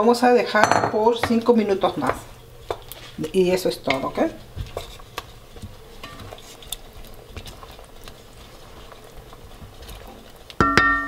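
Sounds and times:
wooden spoon stirring in a pot: 0:00.0 - 0:11.0
spoon knocking against a pot: 0:10.6 - 0:11.0.

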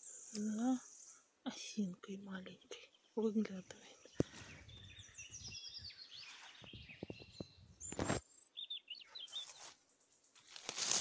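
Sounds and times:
songbird chirping: 0:00.0 - 0:11.0
footsteps in dry leaves: 0:09.2 - 0:09.8, 0:10.4 - 0:11.0.

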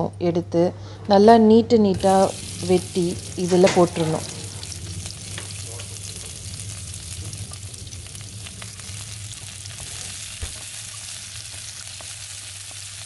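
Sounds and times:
steady low hum: 0:00.0 - 0:13.0
onions sizzling in hot oil: 0:02.0 - 0:13.0.

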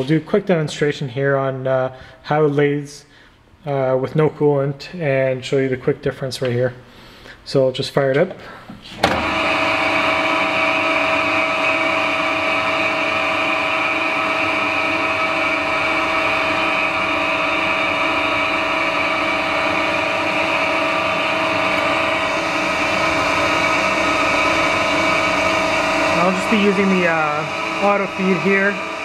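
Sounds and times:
metal lathe whining: 0:09.0 - 0:29.0.

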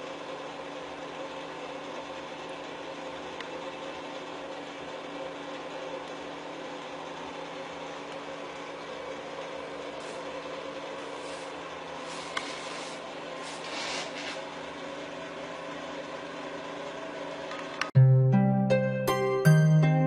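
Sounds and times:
mechanical hum with faint hiss: 0:00.0 - 0:17.9
plucked harp music: 0:18.0 - 0:20.0.

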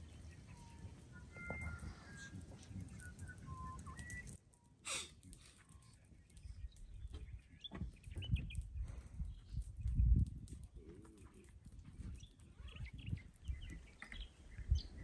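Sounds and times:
birds chirping and calling: 0:00.0 - 0:04.4, 0:05.4 - 0:10.2, 0:10.8 - 0:15.0.

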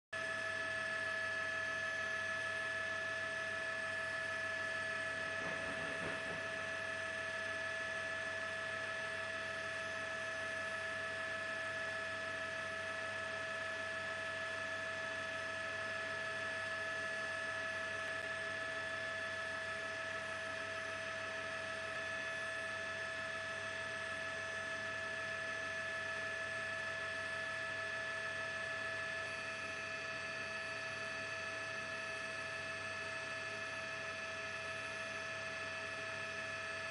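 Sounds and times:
electrical hum: 0:00.2 - 0:11.0.

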